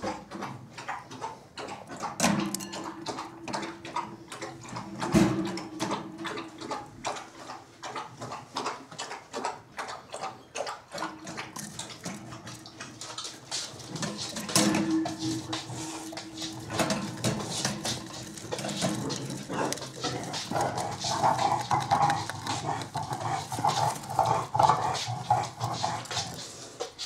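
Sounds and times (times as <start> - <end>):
gerbils scratching in wire cage: 11.2 - 27.0.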